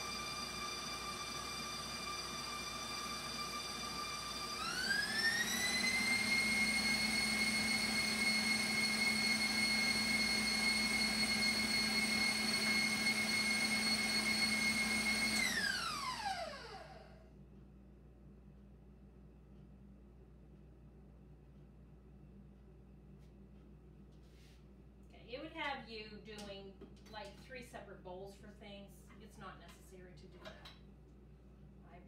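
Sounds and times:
stand mixer motor whine: 0.0s - 17.2s.

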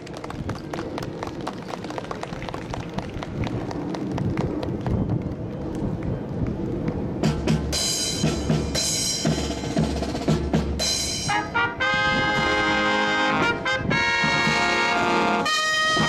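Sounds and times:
brass band chords: 7.8s - 16.0s.

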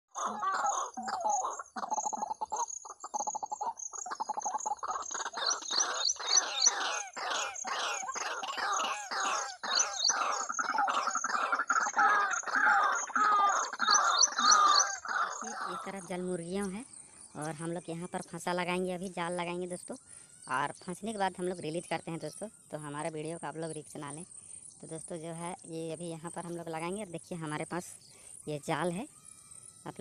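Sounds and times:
bird croaking calls from speaker: 0.1s - 16.4s.

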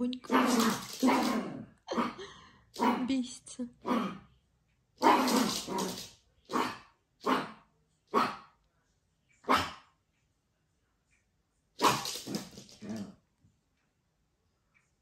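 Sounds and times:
small dog barking: 5.0s - 8.5s, 9.4s - 9.9s, 11.8s - 12.5s.

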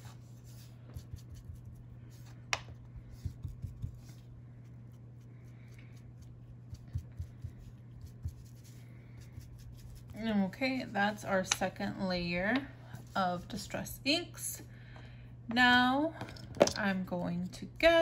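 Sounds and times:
steady low hum: 0.0s - 18.0s
foam tool tapping on paper: 2.5s - 4.1s.

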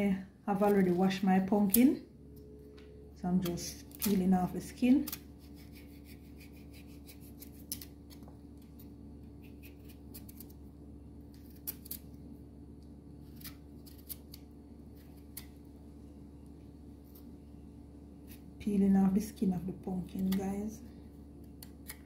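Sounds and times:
steady low hum: 0.0s - 22.0s
knife scraping pumpkin skin: 5.0s - 10.5s, 11.3s - 12.0s, 13.2s - 15.6s.

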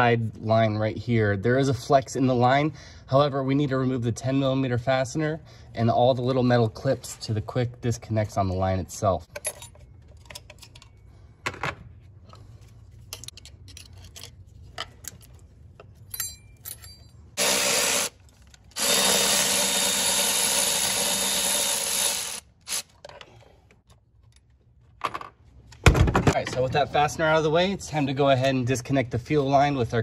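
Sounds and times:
electric ratchet spinning: 17.4s - 18.2s, 18.8s - 22.9s.

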